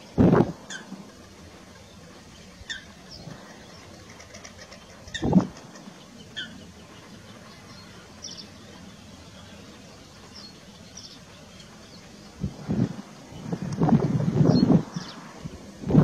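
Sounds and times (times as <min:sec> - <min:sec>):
low open air hum: 0:00.0 - 0:16.0
goslings peeping: 0:02.3 - 0:08.6.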